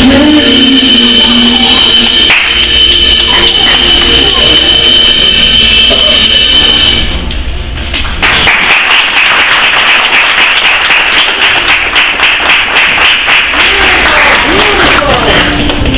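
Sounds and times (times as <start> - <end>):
music over loudspeakers: 0.0 - 7.2, 13.0 - 15.9
crowd applauding: 8.2 - 15.9.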